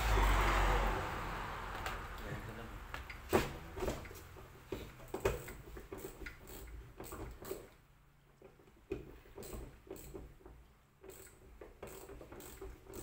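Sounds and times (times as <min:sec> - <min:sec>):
tools clicking and knocking: 0:03.8 - 0:13.0.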